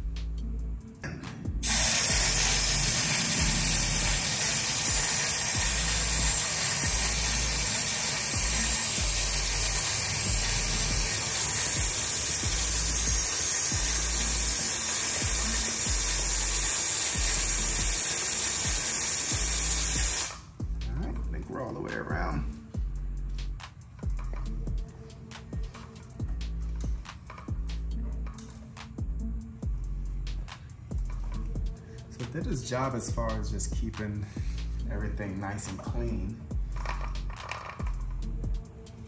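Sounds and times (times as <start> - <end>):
aerosol spray hissing: 1.6 - 20.6.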